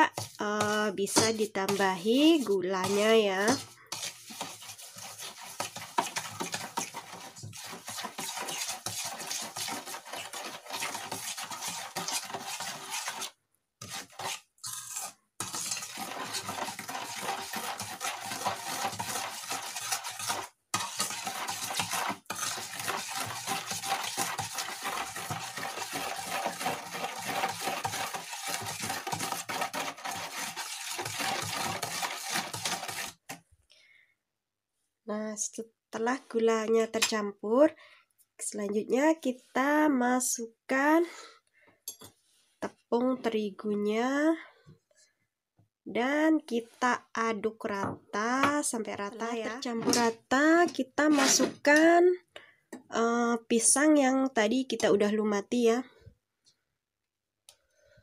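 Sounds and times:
spoon scraping metal bowl: 0:00.0 - 0:33.4, 0:49.4 - 0:51.9.

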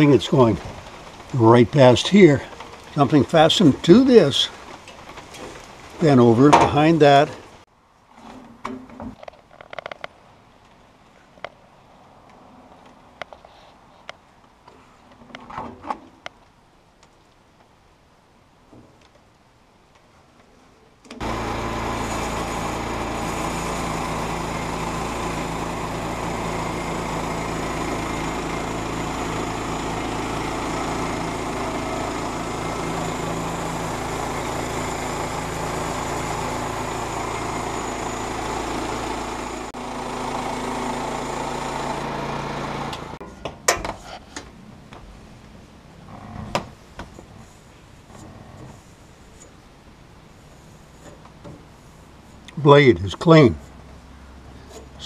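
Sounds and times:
band blade cutting log: 0:21.2 - 0:43.2
small engine running: 0:21.2 - 0:43.2.

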